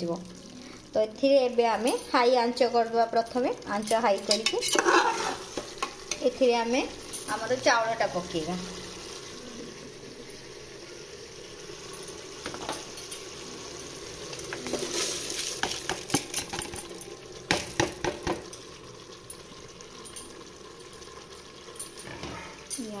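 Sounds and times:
food sizzling in pot: 0.0 - 23.0
metal spatula scraping pot: 4.1 - 6.3.

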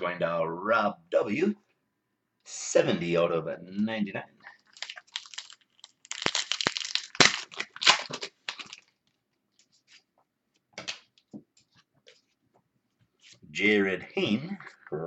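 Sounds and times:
wrapper tearing and crinkling: 4.6 - 9.2.

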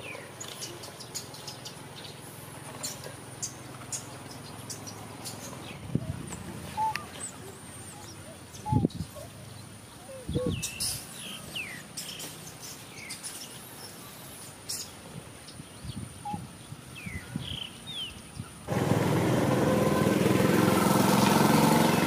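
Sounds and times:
small engine hum: 0.0 - 8.6, 18.7 - 22.0.

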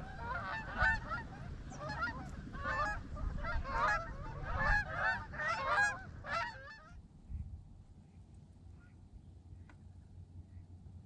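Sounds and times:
flock of waterfowl calling: 0.0 - 7.0.

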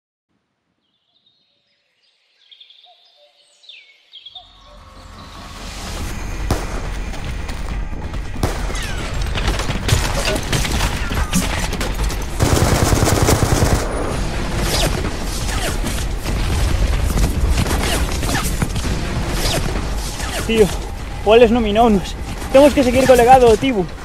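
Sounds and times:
gunshots: 6.4 - 24.0
rapid gunfire burst: 8.4 - 23.8.

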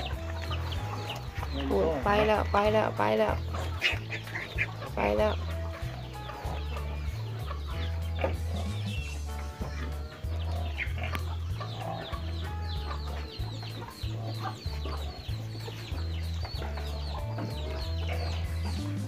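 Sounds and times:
background music bass line: 0.0 - 19.0
chickens clucking: 0.0 - 19.0
chicks cheeping: 0.0 - 19.0.

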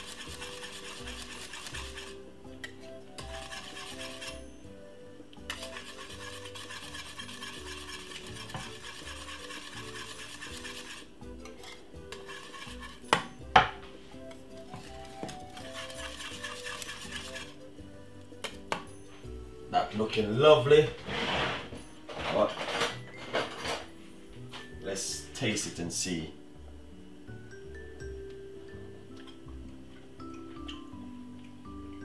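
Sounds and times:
whisk scraping in saucepan: 0.0 - 4.6, 5.5 - 13.2, 14.8 - 17.6.

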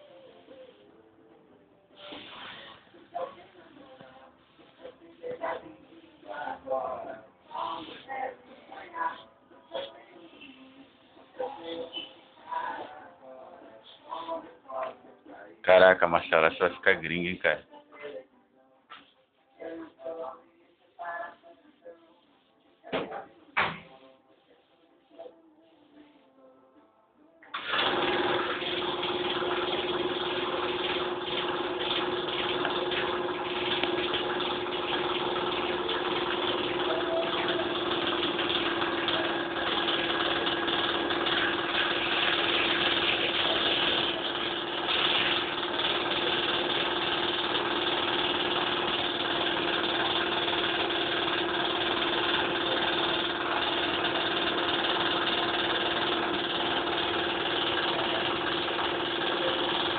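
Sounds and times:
motor humming: 27.6 - 59.9.

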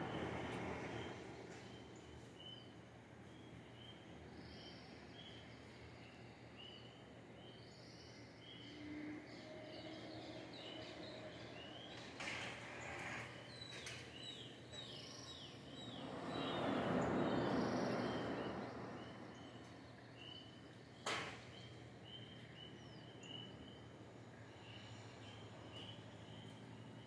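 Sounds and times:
birds chirping: 0.0 - 27.0
sea surf rushing: 16.0 - 19.9.

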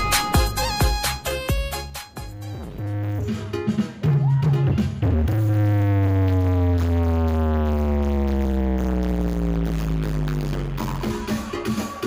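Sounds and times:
electronic dance music: 0.0 - 12.0
synth tone falling in pitch: 2.3 - 3.5, 5.0 - 12.0.

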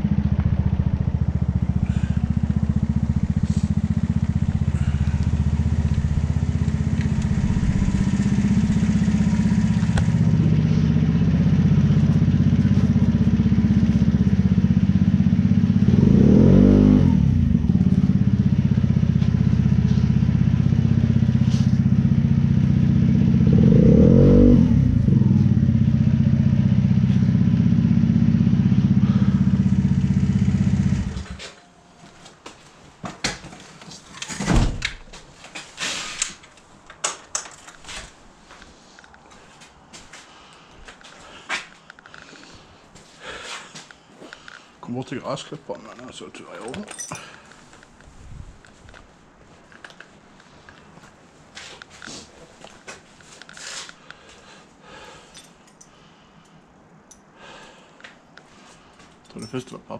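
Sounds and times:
engine droning: 0.0 - 31.9.

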